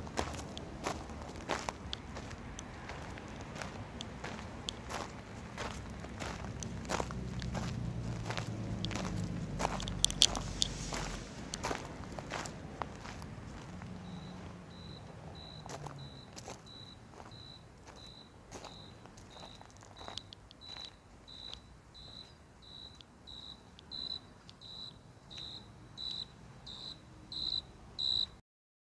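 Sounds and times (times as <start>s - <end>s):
cricket chirping: 14.0s - 28.4s.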